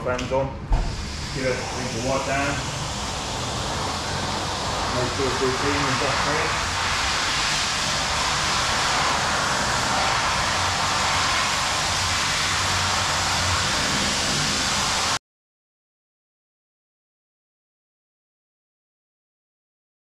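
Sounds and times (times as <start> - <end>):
low hum: 0.5 - 15.2
steady rushing noise: 0.6 - 15.2.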